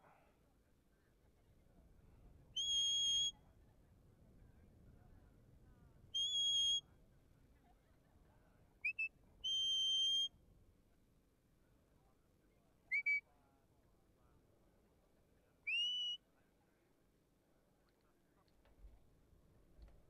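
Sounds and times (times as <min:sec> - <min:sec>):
person whistling commands: 0:02.6 - 0:03.4, 0:06.2 - 0:06.8, 0:08.8 - 0:10.3, 0:12.9 - 0:13.2, 0:15.7 - 0:16.2.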